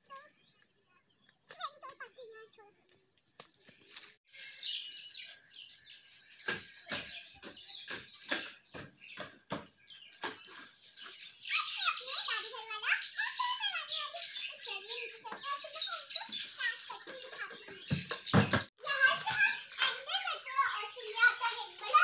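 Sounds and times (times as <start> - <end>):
insect chorus: 0.0 - 4.2
faint bird chirps: 0.0 - 18.6.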